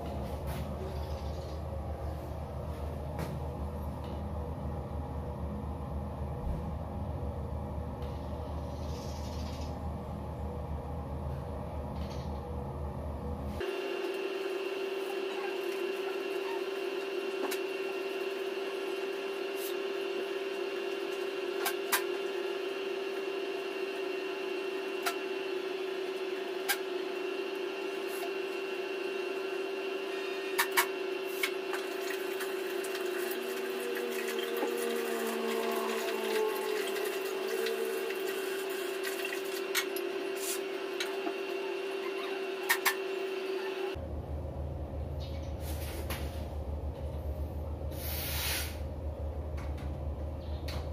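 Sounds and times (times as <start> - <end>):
steady hum: 0.0 - 50.9
water running: 31.4 - 42.0.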